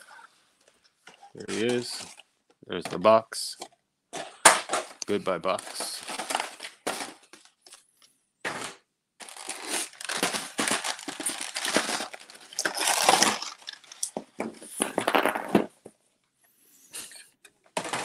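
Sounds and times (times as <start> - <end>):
plastic packaging crinkling: 4.7 - 7.9, 9.2 - 15.7.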